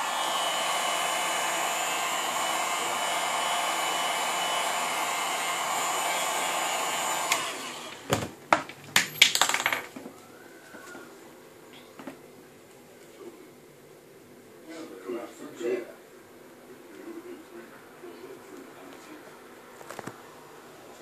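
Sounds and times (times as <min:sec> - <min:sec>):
heat gun blowing: 0:00.0 - 0:08.1.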